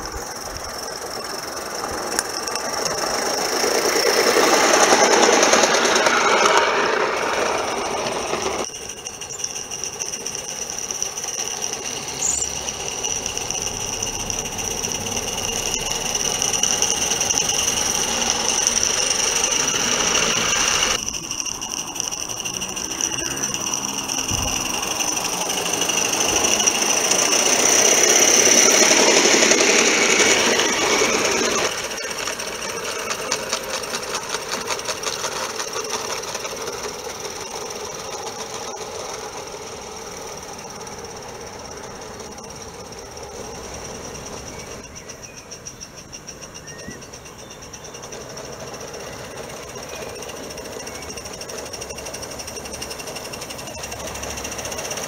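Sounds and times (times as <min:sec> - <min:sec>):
steam hiss: 0:00.0 - 0:41.5
model steam locomotive chuffing: 0:00.0 - 0:55.0.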